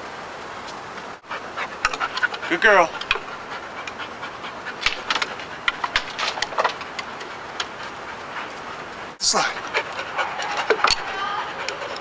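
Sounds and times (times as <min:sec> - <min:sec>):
dog panting: 0:01.2 - 0:12.0.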